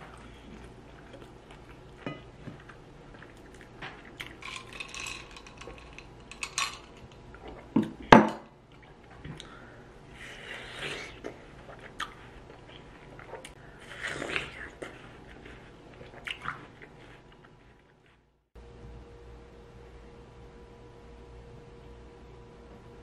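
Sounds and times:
dishes clinking: 2.0s - 2.3s, 4.4s - 7.2s.

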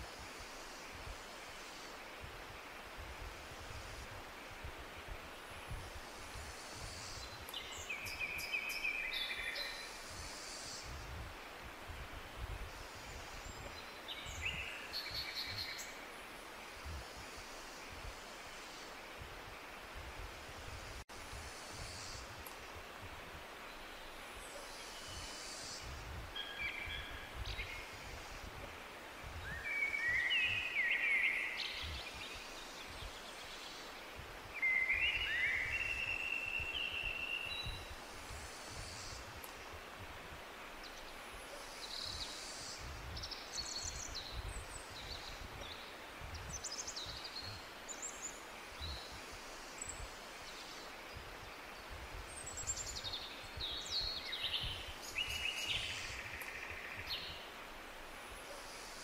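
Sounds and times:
steady hiss: 0.0s - 59.0s
birds singing: 6.9s - 11.0s, 29.4s - 34.0s, 41.8s - 57.5s.

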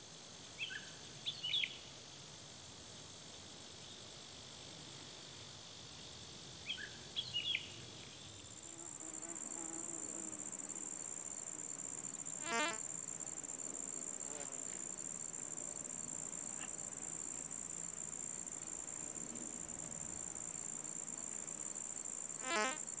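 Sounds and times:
insects trilling: 6.6s - 23.0s.

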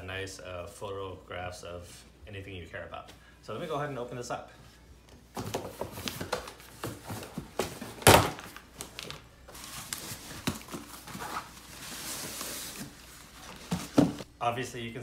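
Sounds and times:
cardboard knocks and scrapes: 12.3s - 14.3s.

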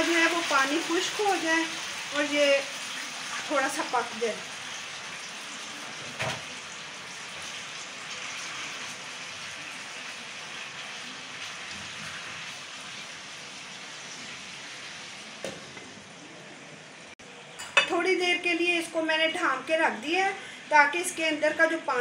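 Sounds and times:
chicken sizzling in hot oil: 0.0s - 17.1s.

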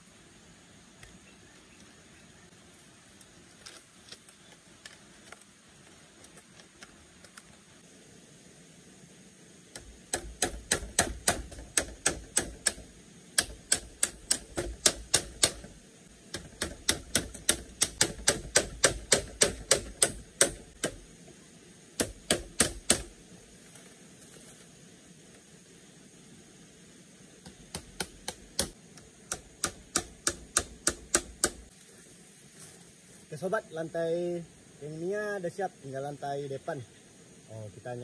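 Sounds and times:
hammering nails into bamboo: 9.7s - 21.1s, 22.0s - 23.2s, 27.4s - 31.7s.

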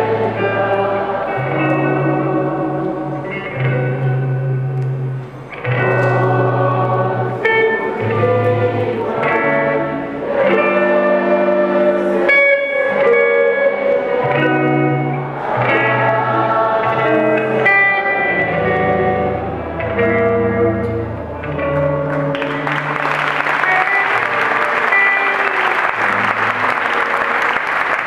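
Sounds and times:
electric guitar playing: 0.0s - 28.0s
held chords: 0.0s - 28.0s.

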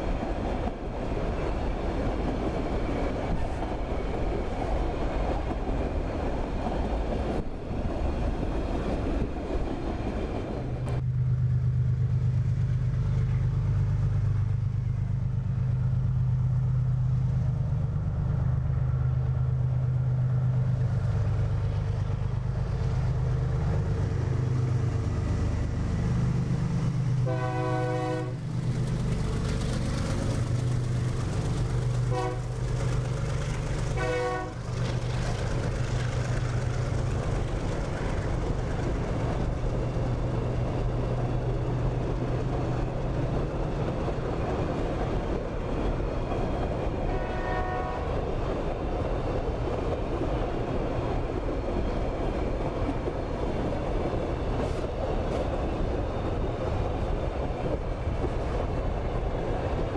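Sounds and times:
diesel locomotive drone: 0.0s - 59.9s
train wheels rumbling on rail: 0.0s - 59.9s
locomotive horn blasts: 27.2s - 28.4s, 32.1s - 32.5s, 34.0s - 34.6s, 47.1s - 48.2s.

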